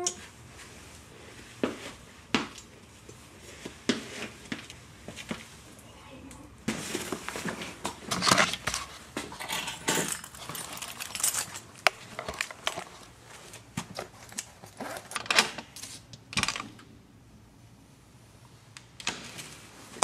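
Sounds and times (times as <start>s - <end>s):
clothing rustling: 6.7s - 15.3s
handling clicks and knocks: 7.9s - 12.9s
keys jangling: 9.4s - 11.8s.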